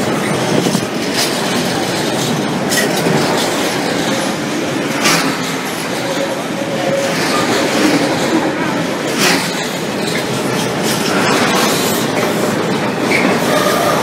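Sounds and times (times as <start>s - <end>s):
freight train wheels rumbling: 0.0s - 14.0s
sharp wheel clacks: 4.9s - 6.4s, 7.1s - 13.9s.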